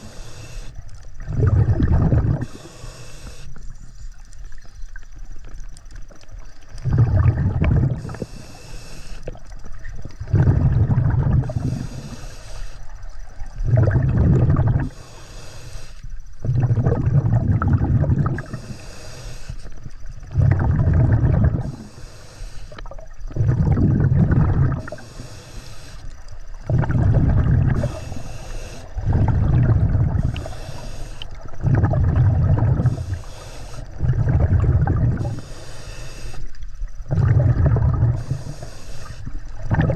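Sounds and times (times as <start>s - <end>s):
regulator inhalation hiss: 0.0s - 1.1s, 2.3s - 4.2s, 7.9s - 10.2s, 11.3s - 13.6s, 14.7s - 16.4s, 18.3s - 20.3s, 21.6s - 23.4s, 24.7s - 31.7s, 32.6s - 34.0s, 35.1s - 36.9s, 38.1s - 39.7s
exhaust bubbles rumbling: 1.2s - 2.6s, 6.8s - 8.2s, 9.3s - 12.1s, 13.4s - 15.0s, 16.4s - 18.6s, 20.2s - 21.8s, 22.9s - 25.1s, 26.6s - 28.2s, 28.9s - 35.4s, 37.0s - 38.5s, 39.4s - 39.9s.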